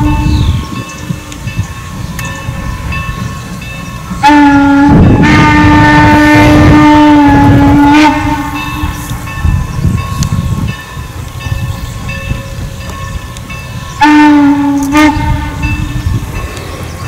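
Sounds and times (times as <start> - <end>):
rumble of passing train: 0.0 - 17.0
steam whistle blast: 4.2 - 9.0, 14.0 - 15.8.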